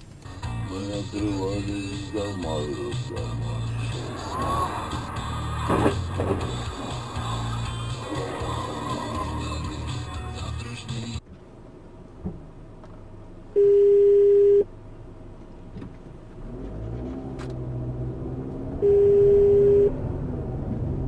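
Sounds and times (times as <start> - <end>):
car engine running: 0.0 - 13.6
loud steady beeps: 18.8 - 19.9.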